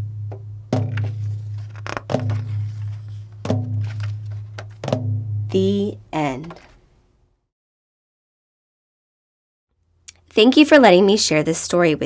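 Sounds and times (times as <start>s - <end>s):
drum beat with deep ringing tone: 0.0s - 5.9s.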